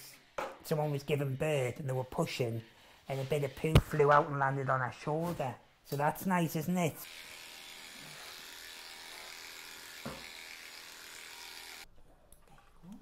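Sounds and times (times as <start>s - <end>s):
pet hair clippers buzzing: 6.9s - 11.9s.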